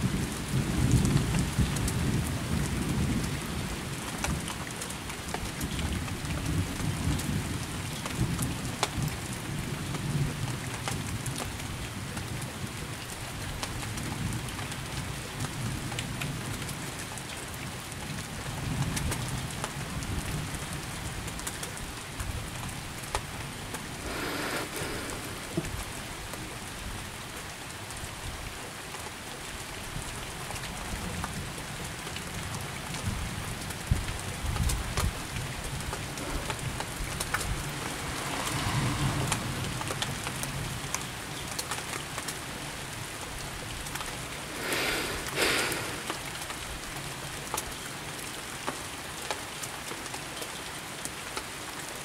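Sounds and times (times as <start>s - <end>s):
steady rain: 0.0s - 52.0s
low rolling thunder: 35.8s - 40.9s.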